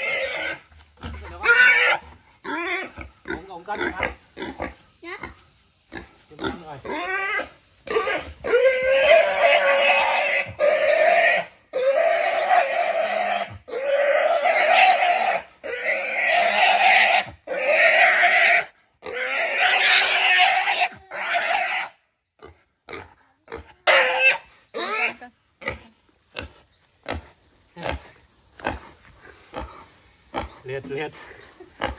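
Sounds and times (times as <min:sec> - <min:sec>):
wild boar squealing: 0:00.0 - 0:03.1, 0:06.8 - 0:22.0, 0:23.8 - 0:25.8.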